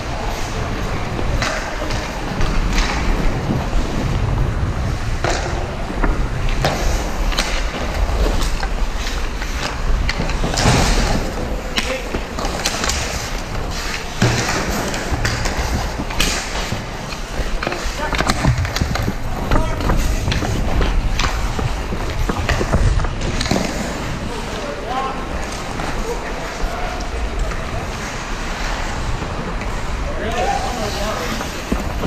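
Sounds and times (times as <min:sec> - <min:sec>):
skates gliding and scraping: 0:00.0 - 0:32.0
low rumble: 0:00.2 - 0:11.7
stick and puck clicks: 0:05.2 - 0:24.0.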